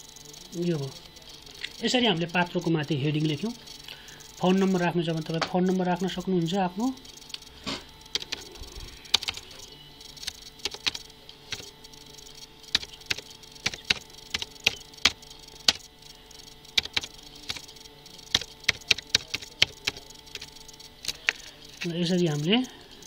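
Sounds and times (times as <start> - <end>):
computer keyboard typing: 0.0 - 6.2, 6.8 - 23.0.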